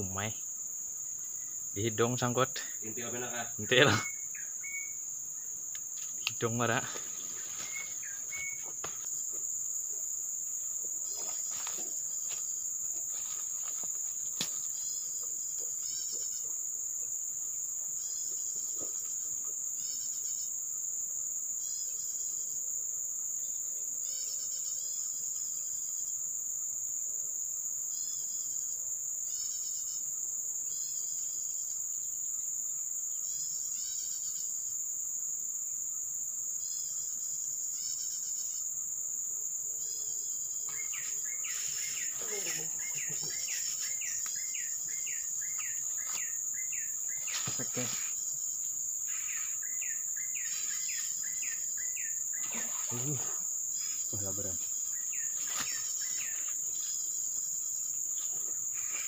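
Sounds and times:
high-pitched insect drone: 0.0s - 22.6s, 33.1s - 35.2s, 36.5s - 39.0s, 39.8s - 59.0s
rapid insect chirps: 0.0s - 59.0s.

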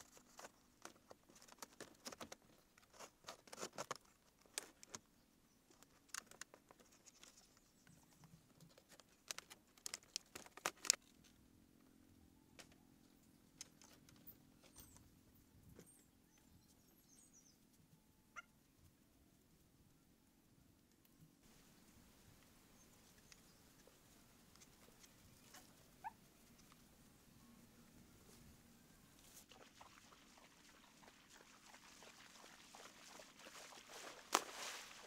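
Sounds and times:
faint bird chirps: 14.2s - 18.6s
palm leaves and bamboo rustling: 28.2s - 35.0s.

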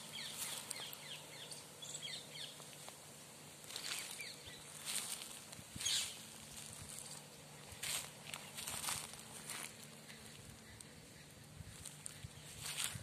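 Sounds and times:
footsteps crunching dry grass: 0.0s - 1.4s, 2.5s - 13.0s
small birds chirping: 0.0s - 13.0s
rustling: 2.6s - 11.0s.

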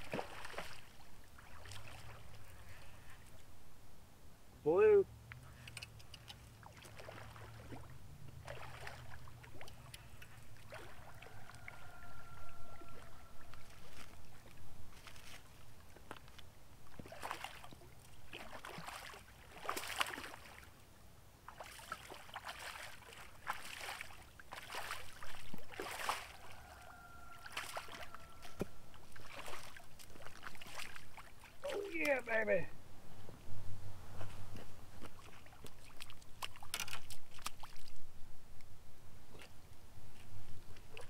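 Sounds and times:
fish splashing and thrashing: 0.0s - 2.8s, 5.7s - 20.7s, 21.5s - 32.3s, 35.0s - 38.0s.

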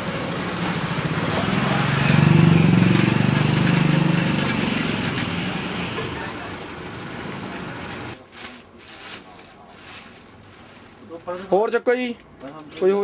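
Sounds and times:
vehicle engine passing by: 0.0s - 8.2s
plastic mat crackling: 8.2s - 11.7s.

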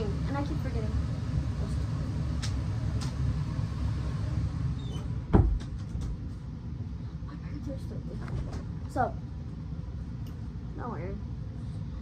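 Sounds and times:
loud thump: 5.3s - 5.8s.

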